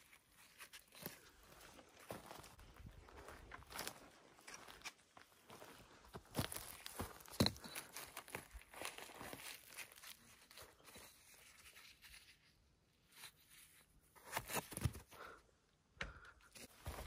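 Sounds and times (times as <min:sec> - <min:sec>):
crunching of dry leaf litter: 0:06.4 - 0:12.4.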